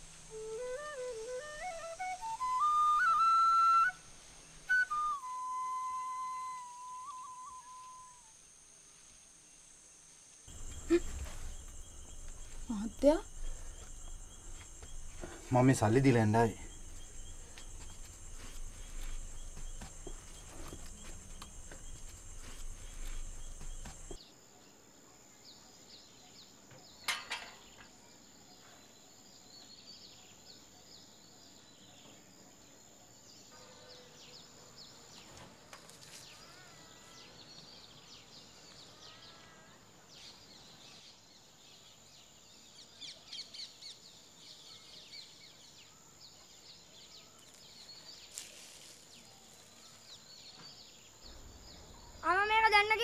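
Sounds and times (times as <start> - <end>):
high-pitched insect whine: 0.0 - 24.3.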